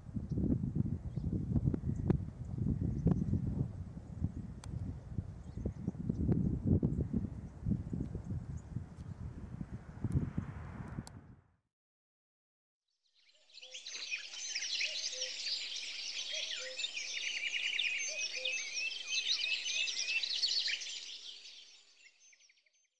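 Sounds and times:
songbirds chirping: 13.3 - 22.6.

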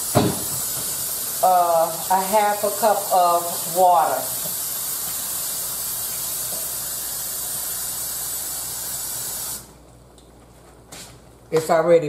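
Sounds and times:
water bubbling in hot pan: 0.0 - 9.6
food sizzling in a pan: 0.0 - 9.7.

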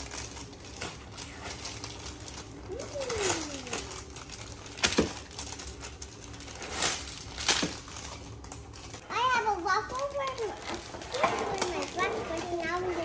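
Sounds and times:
plastic wrappers rustling: 0.0 - 13.0
sharp wrapper crackles: 0.0 - 13.0.

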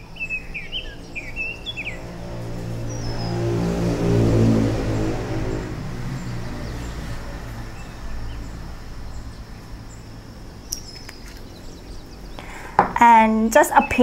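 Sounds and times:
faint bird chirps: 0.0 - 2.0
low hum: 0.0 - 13.2
engine-like drone: 0.0 - 14.0.

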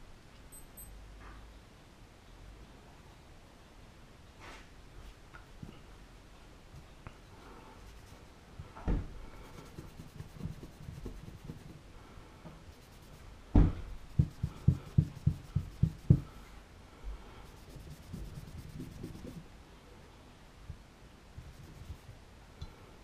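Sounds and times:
cloth rubbing on metal: 7.8 - 8.4, 9.4 - 11.8, 12.7 - 13.3, 14.0 - 16.5, 17.4 - 19.4, 21.4 - 22.1
dull knocks: 13.5 - 16.3.

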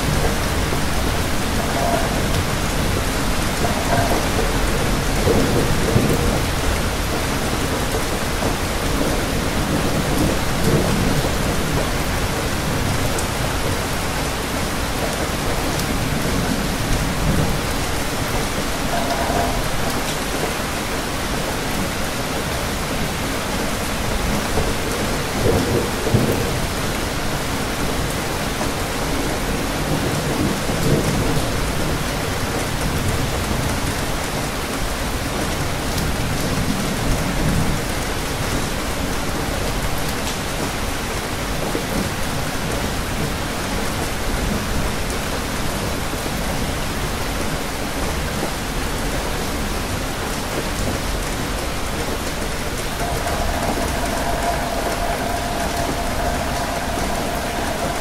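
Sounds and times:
rain pattering on hard surfaces: 0.0 - 58.0
low rumbles: 52.8 - 58.0.

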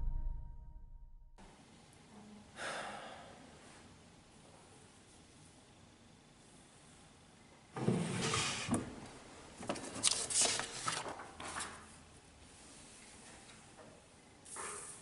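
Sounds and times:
paper rustling and sliding: 9.7 - 11.9.

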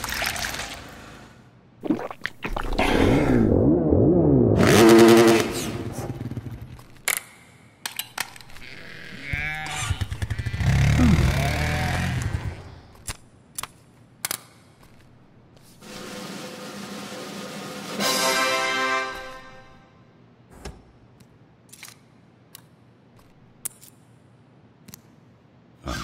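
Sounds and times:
small engine revving: 4.6 - 6.6, 8.6 - 12.8
sharp clicks and snaps: 12.9 - 14.6, 24.8 - 25.2.

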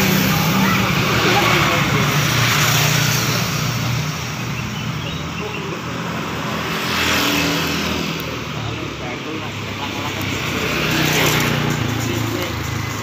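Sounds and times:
road traffic: 0.0 - 13.0
car engine idling: 7.9 - 13.0.

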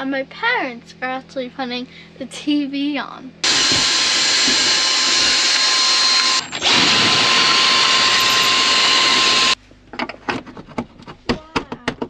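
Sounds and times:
cordless drill whining: 3.4 - 9.6.

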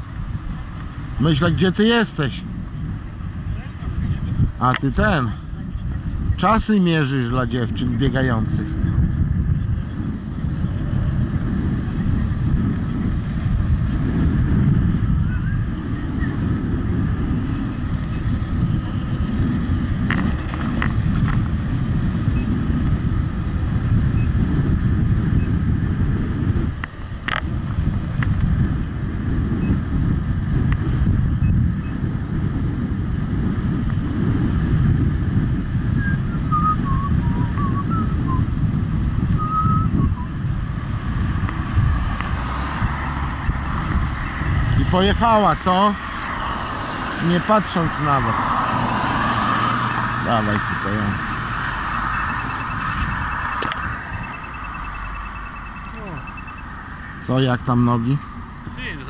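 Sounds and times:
wind buffeting microphone: 0.0 - 59.0
faint high chirps: 54.2 - 56.7.

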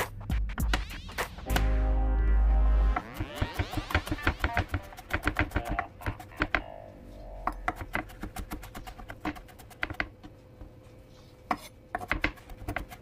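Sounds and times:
faint background music: 0.0 - 9.8
knife chopping on cutting board: 3.0 - 6.6, 7.6 - 10.1, 11.5 - 13.0.

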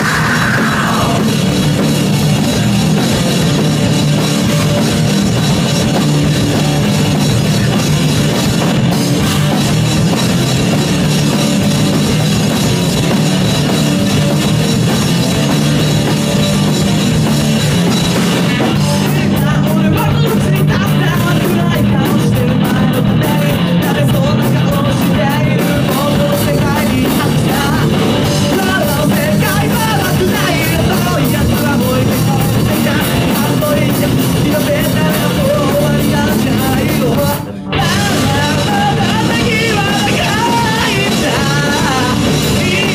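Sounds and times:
person singing into a microphone: 0.0 - 1.5, 18.5 - 42.9
distorted electric guitar: 0.0 - 42.9
drum kit: 0.0 - 42.9
electric bass: 0.0 - 42.9.

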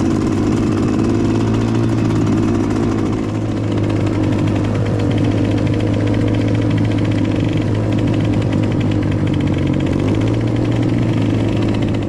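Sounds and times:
dirt bike engine running: 0.0 - 12.0.

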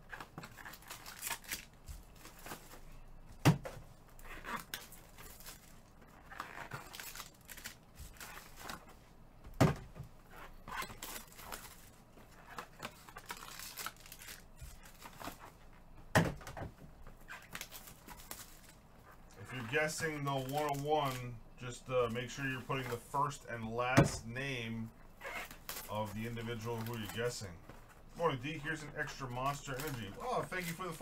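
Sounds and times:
foil crinkling and tearing: 0.0 - 2.8, 4.2 - 8.8, 10.3 - 15.5, 17.2 - 18.8, 19.4 - 21.3, 25.3 - 27.5, 28.2 - 31.0.

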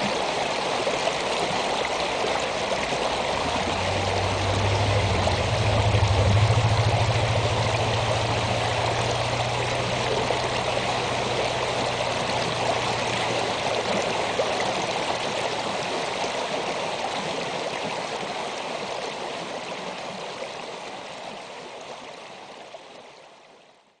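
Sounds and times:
water rushing over rocks: 0.0 - 21.8
low hum: 1.4 - 16.4.

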